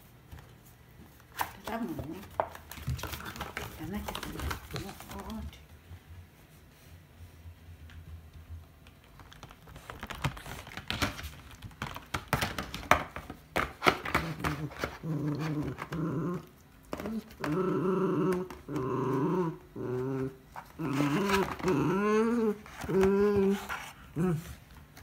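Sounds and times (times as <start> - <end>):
dog growling: 14.1 - 24.6.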